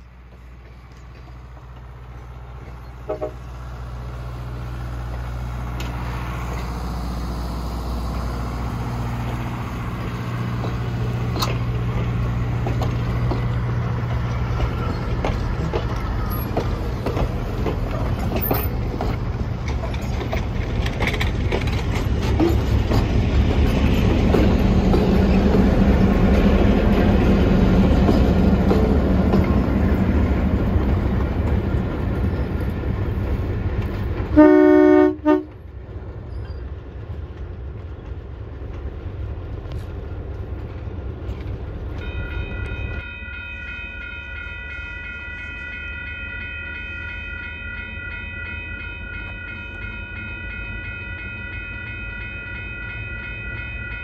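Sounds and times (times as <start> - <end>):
train wheels clicking over rail joints: 0.0 - 34.4, 35.5 - 43.0
diesel locomotive engine drone: 0.0 - 54.0.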